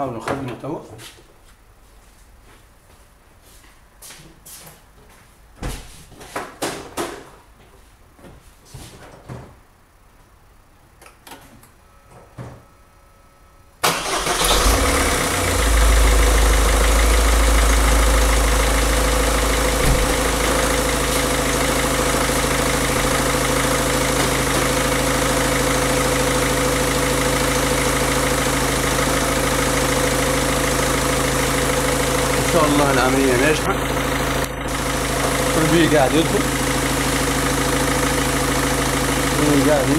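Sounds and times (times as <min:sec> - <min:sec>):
diesel engine starting and idling: 0:13.8 - 0:39.9.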